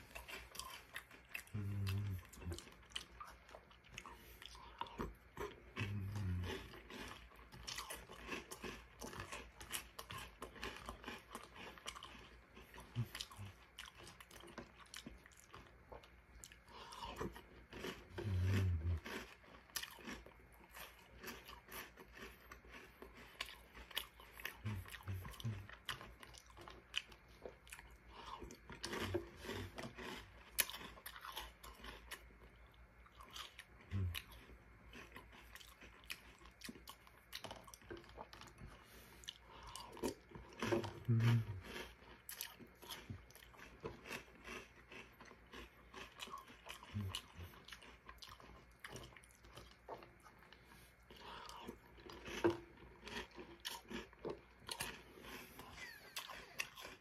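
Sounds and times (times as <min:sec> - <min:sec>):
crunchy chewing: 0:00.0 - 0:57.0
person humming low: 0:01.5 - 0:02.6, 0:41.0 - 0:41.6.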